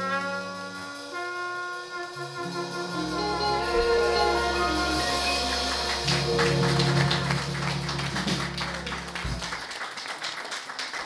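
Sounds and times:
live jazz band chord: 0.0 - 9.7
audience applause: 4.0 - 11.0.

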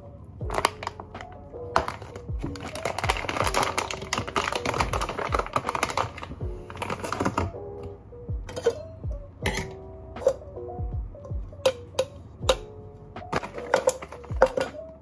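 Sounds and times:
background music with soft beat: 0.0 - 15.0
foil bag crinkling: 0.5 - 7.5.

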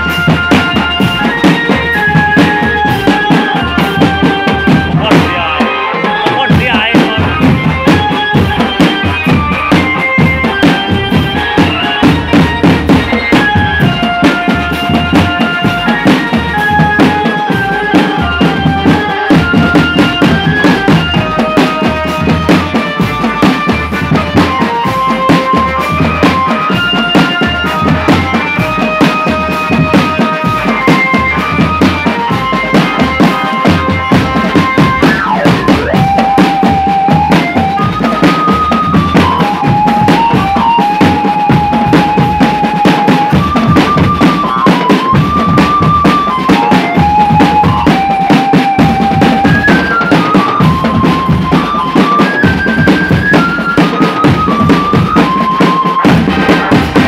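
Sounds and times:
held-note melody: 0.0 - 57.0
snare and bass drums beating: 0.0 - 57.0.

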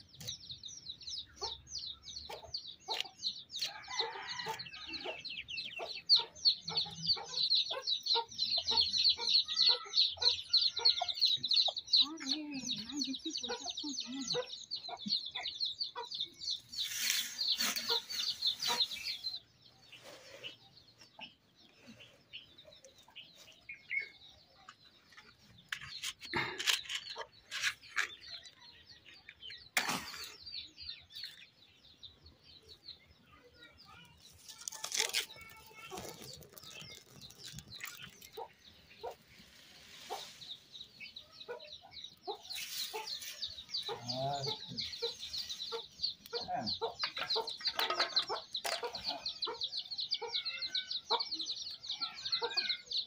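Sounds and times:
small birds chirping: 0.0 - 53.0
chickens clucking: 1.2 - 31.4, 35.8 - 53.0
dry leaves rustling and crackling: 16.8 - 19.3, 34.2 - 38.4, 42.5 - 43.5.

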